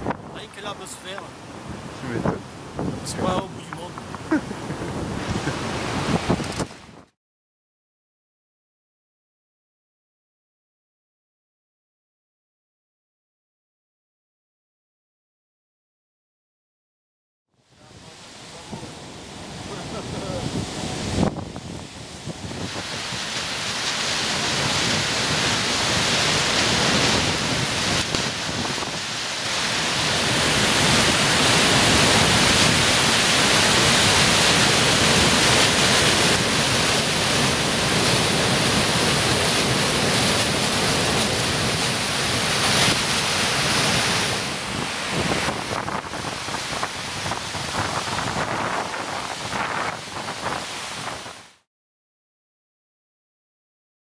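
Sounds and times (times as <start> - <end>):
water rushing over a weir: 17.6 - 51.6.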